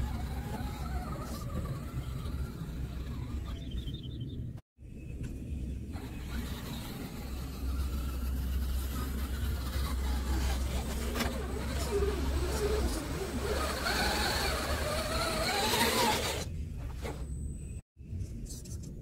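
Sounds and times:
electric motor whine: 6.0s - 16.5s.

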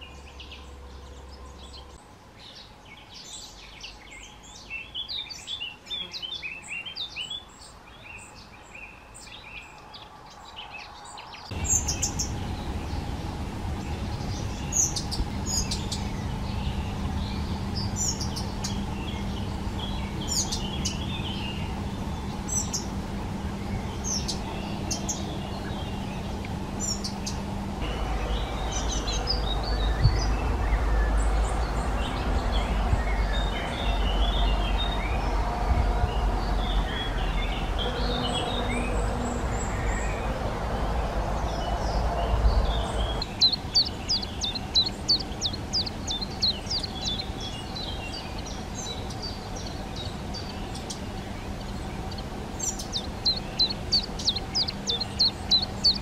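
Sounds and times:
songbirds chirping and calling: 0.0s - 56.0s
steady low hum: 11.5s - 56.0s.

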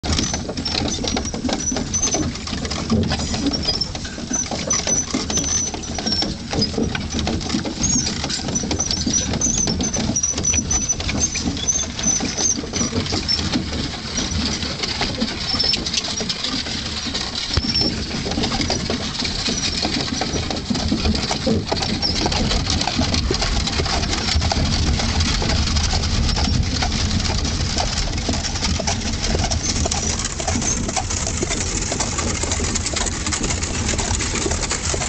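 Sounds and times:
carriage wheels crunching gravel: 0.0s - 35.0s
hooves clopping on gravel: 0.0s - 35.0s
high thin squeaks: 3.5s - 6.3s.

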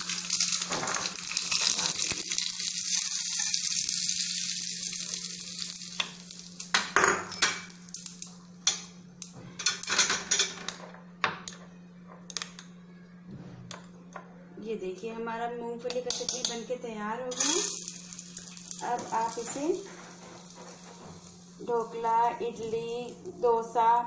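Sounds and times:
oil sizzling: 0.0s - 9.3s, 17.3s - 24.0s.

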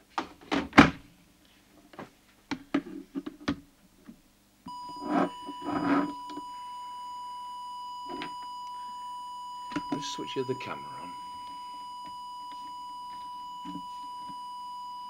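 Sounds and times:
steady test tone: 4.7s - 15.0s.

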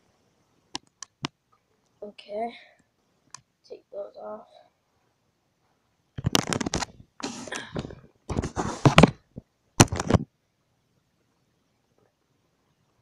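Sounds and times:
microphone handling scraping: 6.2s - 10.3s.

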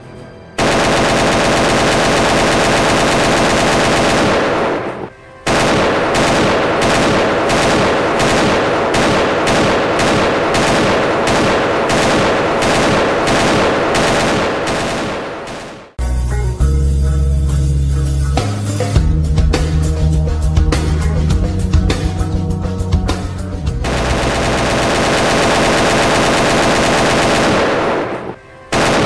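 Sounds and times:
machine-gun bursts: 0.6s - 16.0s, 23.8s - 29.0s.

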